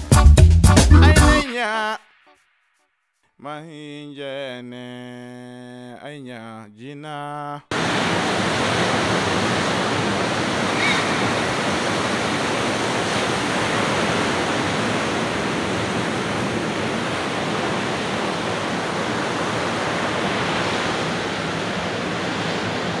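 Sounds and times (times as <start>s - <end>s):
ocean waves breaking: 7.7s - 23.0s.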